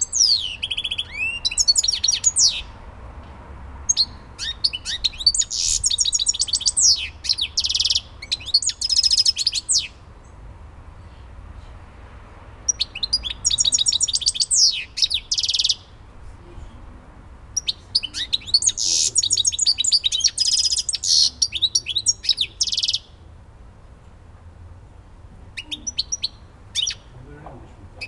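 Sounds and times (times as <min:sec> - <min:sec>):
goldfinch singing: 0:00.0 - 0:02.7, 0:03.9 - 0:10.0, 0:12.7 - 0:15.9, 0:17.6 - 0:23.2, 0:25.6 - 0:27.1.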